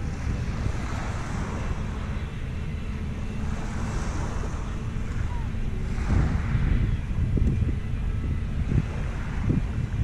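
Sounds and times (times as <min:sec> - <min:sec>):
wind buffeting microphone: 0:00.0 - 0:10.0
waves washing on shingle: 0:05.8 - 0:06.6.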